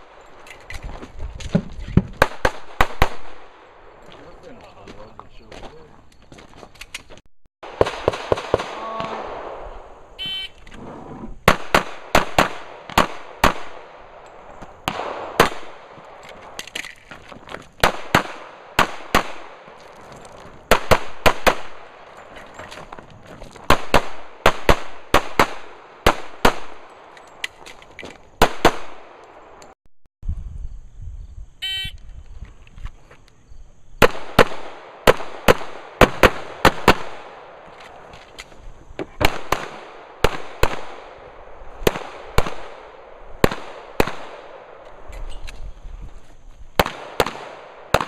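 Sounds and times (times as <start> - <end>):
pistol shots: 7.7 - 9.6, 11.4 - 14.2, 14.8 - 16.2, 17.8 - 19.7, 28.4 - 29.3, 34.0 - 37.6, 39.2 - 44.8, 46.8 - 48.0.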